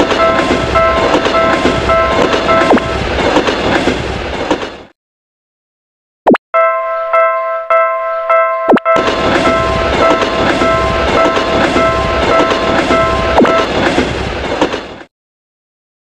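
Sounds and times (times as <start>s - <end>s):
railroad crossing bell ringing: 0.0s - 3.0s, 6.6s - 13.7s
train wheels clattering: 0.0s - 4.9s, 9.0s - 15.1s.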